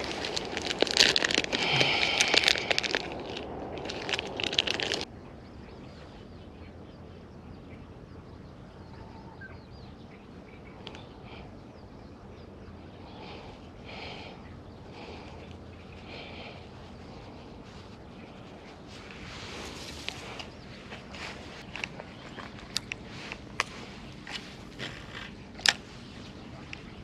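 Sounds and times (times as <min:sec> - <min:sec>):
plastic packet crinkling: 0:00.0 - 0:05.1
faint outdoor background: 0:00.0 - 0:27.0.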